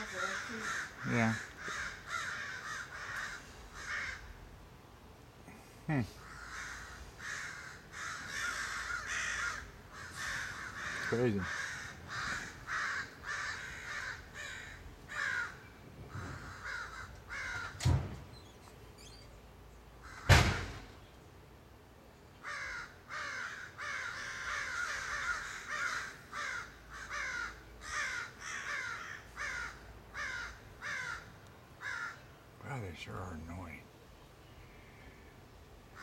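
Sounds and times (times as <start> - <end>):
crows cawing: 0.0 - 4.6, 6.2 - 18.1, 20.0 - 20.9, 22.4 - 32.4, 34.6 - 36.0
sharp knocks: 20.3 - 20.9.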